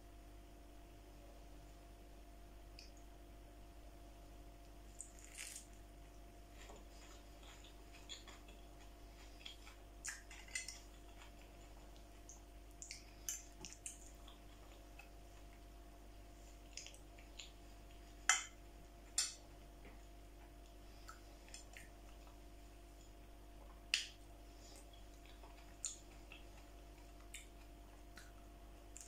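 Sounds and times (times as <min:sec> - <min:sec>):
person chewing: 0:04.9 - 0:05.8, 0:06.4 - 0:15.8, 0:16.4 - 0:19.4, 0:20.6 - 0:29.0.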